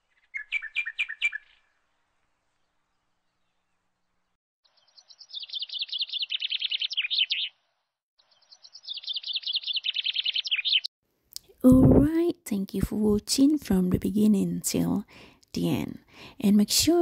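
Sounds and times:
bird chirping rapidly: 0:00.1 - 0:01.7, 0:04.7 - 0:07.6, 0:08.2 - 0:10.9.

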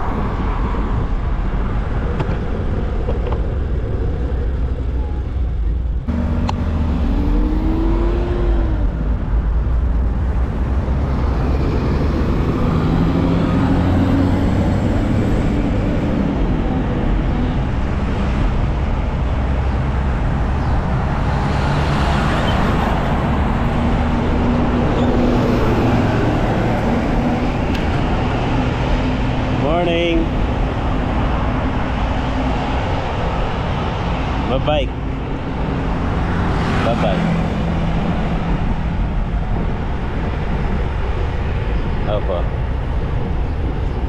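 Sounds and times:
heavy low rumble: 0:00.0 - 0:11.6
vehicles passing: 0:00.0 - 0:44.0.

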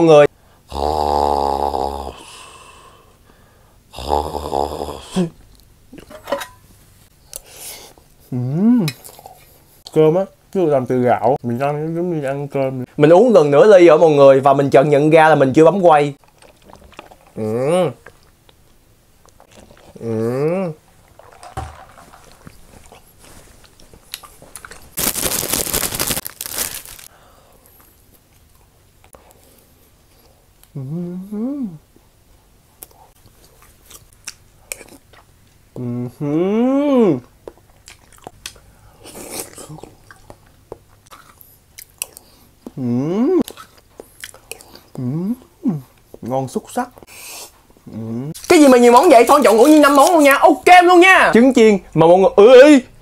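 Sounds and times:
person snoring: 0:00.7 - 0:03.1, 0:03.9 - 0:05.3
croissant crackling and crinkling: 0:21.3 - 0:27.1, 0:48.4 - 0:50.7.

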